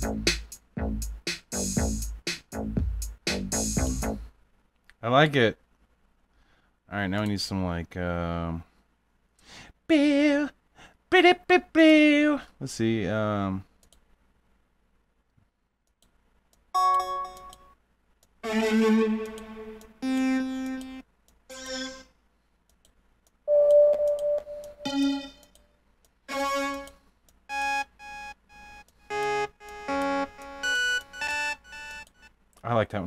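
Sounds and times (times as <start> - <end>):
synthesizer notes: 18.4 - 22.1, 23.5 - 25.6, 26.3 - 32.3.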